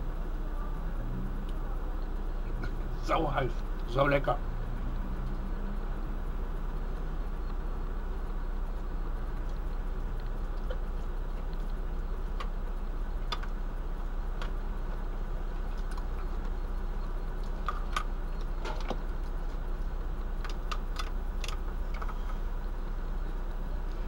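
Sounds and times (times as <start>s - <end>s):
low background rumble: 0.0s - 24.0s.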